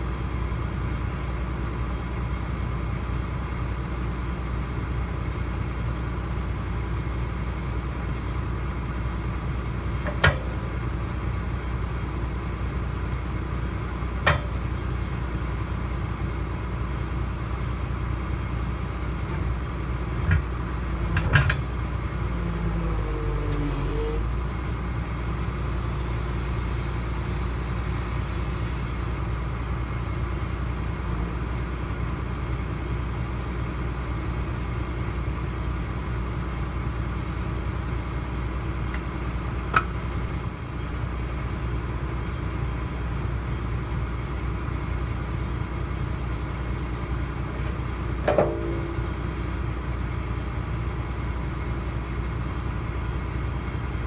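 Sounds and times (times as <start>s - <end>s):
excavator diesel engine idling: 0.0s - 54.0s
sharp knocks: 48.3s - 49.2s.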